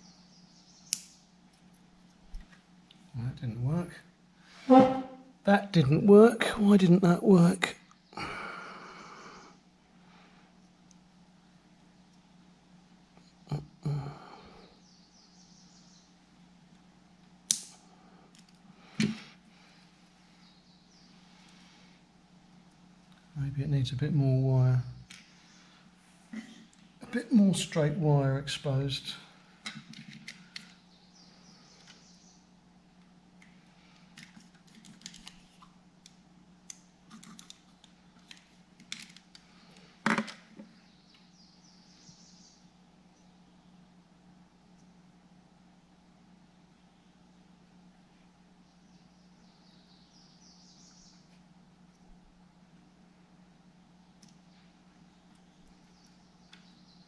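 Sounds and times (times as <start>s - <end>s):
steady low hum: 0.0s - 57.0s
wire stripper clicks and snips: 17.5s - 17.8s.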